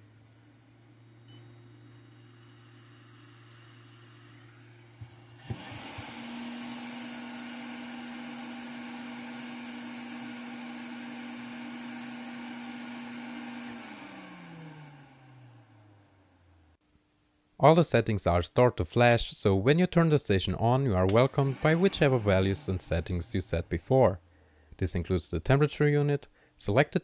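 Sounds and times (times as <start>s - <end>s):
blower fan running: 0.0s - 16.2s, 21.0s - 24.0s.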